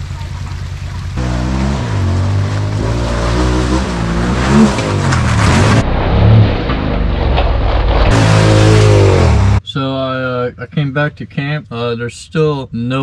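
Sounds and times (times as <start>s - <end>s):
engine revving: 1.2s - 9.6s.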